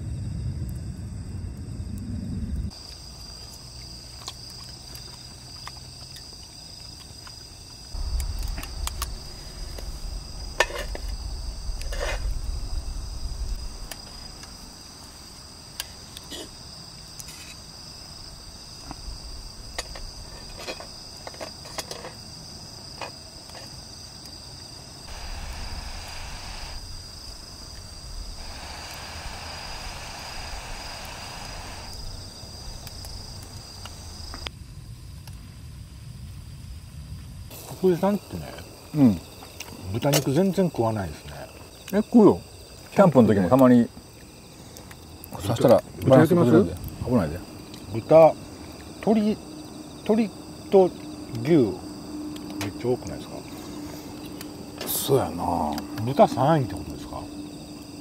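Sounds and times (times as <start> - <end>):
low rumble: 0.0 - 2.7, 8.0 - 14.8, 25.1 - 34.5
night insects droning: 0.0 - 58.0
soft hiss: 8.0 - 16.5, 25.0 - 34.5.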